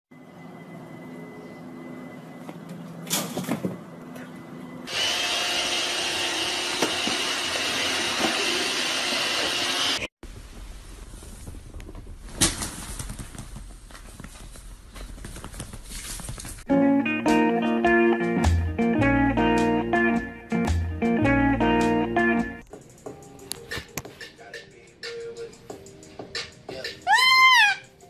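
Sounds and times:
robot vacuum whirring: 4.9s - 10.1s.

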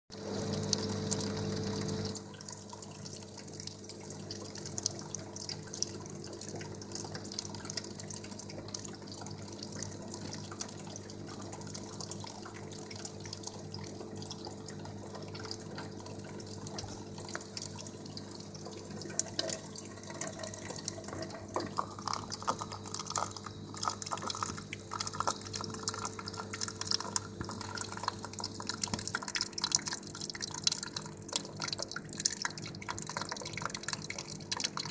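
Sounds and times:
vending machine hum: 0.2s - 2.2s
coffee pouring stream: 0.2s - 34.9s
nozzles dripping into cup: 0.2s - 34.9s.

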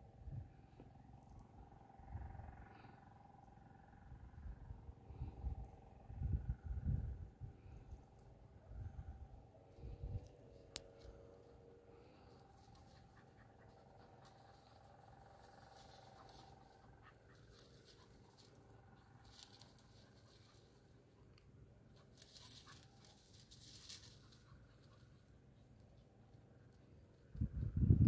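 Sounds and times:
faint rustles and scratches: 9.8s - 21.1s, 21.9s - 26.1s.

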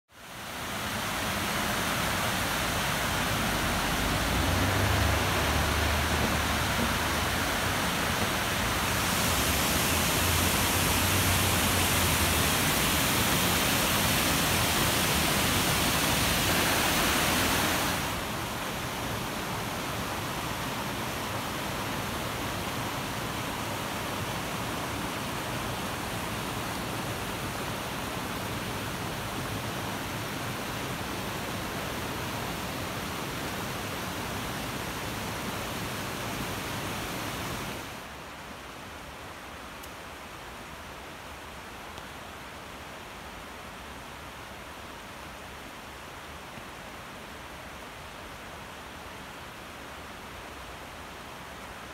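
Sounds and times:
waterfall rushing: 0.2s - 38.2s
rocky creek rushing: 0.2s - 51.9s.

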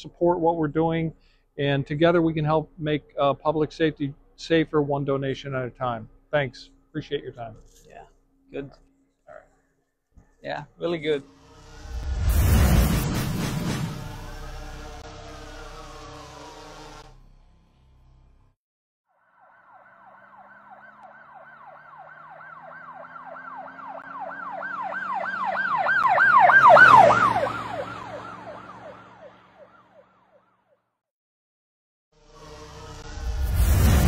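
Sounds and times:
emergency siren yelping: 13.9s - 17.1s, 19.2s - 30.5s.

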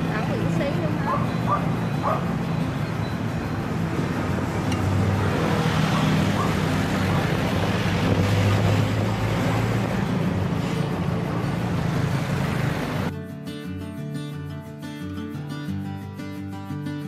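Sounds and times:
rushing wind-like noise: 0.0s - 13.1s
traffic engine hum: 0.0s - 13.1s.

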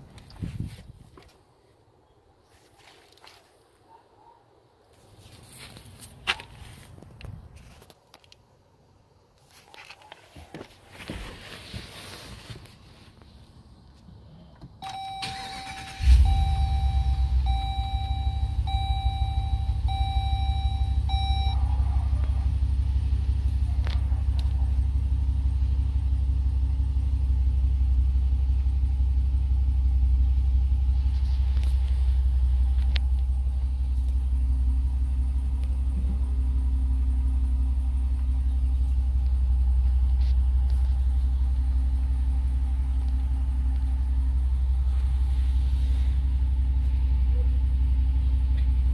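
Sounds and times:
car engine starting and idling: 13.5s - 48.9s
dashboard warning chime: 14.8s - 21.6s.

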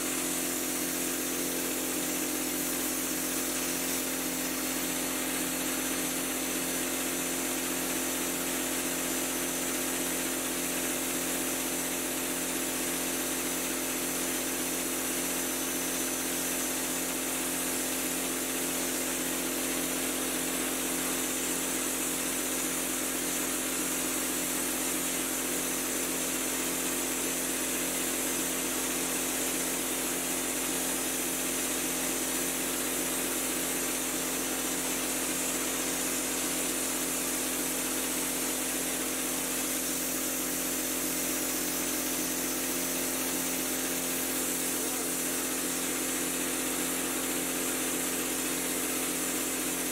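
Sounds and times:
steady machine hum: 0.0s - 18.2s, 29.9s - 49.9s
spray gun air hiss: 0.0s - 49.9s.

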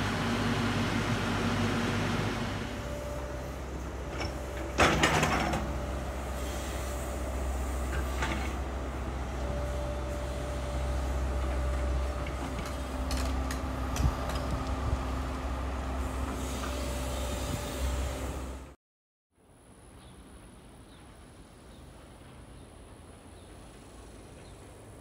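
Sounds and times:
diesel engine rumbling: 0.0s - 18.8s.

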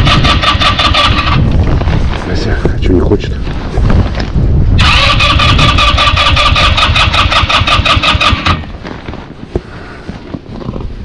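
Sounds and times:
electric starter cranking engine: 4.8s - 8.6s.

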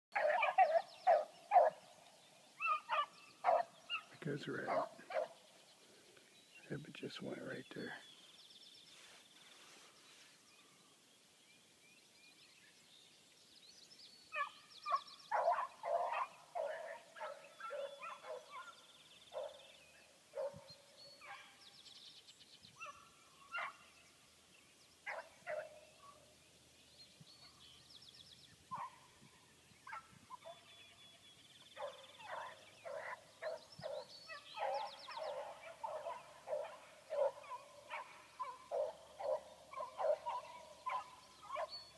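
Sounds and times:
beagles baying: 0.2s - 1.8s, 2.6s - 5.4s, 14.4s - 19.6s, 31.8s - 41.9s.

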